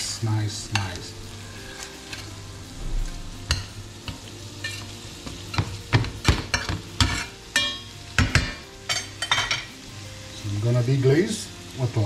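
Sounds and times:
fish sizzling in butter: 0.0s - 12.0s
utensils scraping metal pan: 0.7s - 2.4s.

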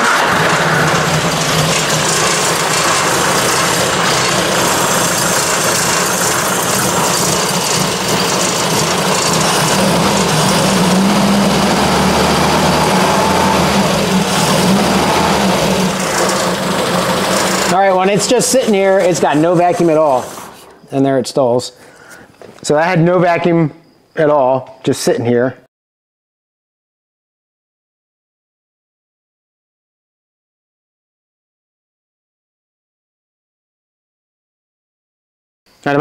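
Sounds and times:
car engine idling: 0.0s - 20.6s.

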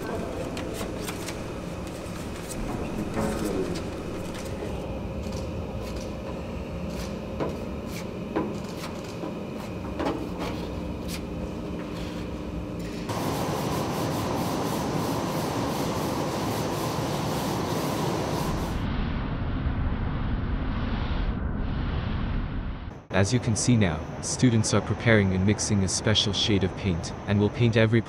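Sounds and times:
low hum: 17.8s - 24.4s.

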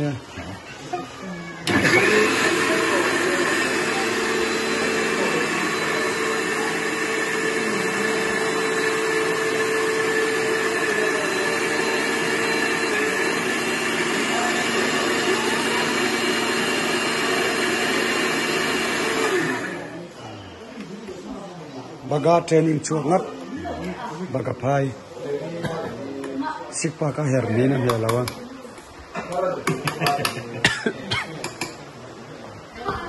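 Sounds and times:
mixer grinder whirring: 1.6s - 20.1s.

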